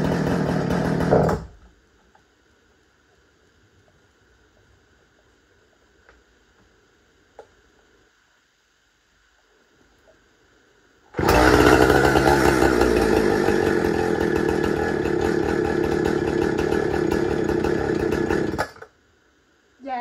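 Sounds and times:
chainsaw engine running: 0.0s - 1.5s, 11.2s - 18.9s.

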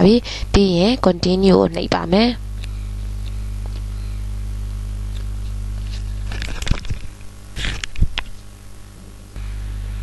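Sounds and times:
electrical mains hum: 0.0s - 10.0s
crackling clicks: 2.5s - 3.9s, 5.0s - 8.5s.

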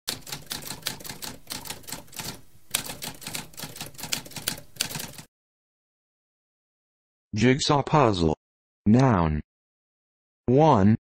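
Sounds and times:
typewriter typing: 0.1s - 5.3s.

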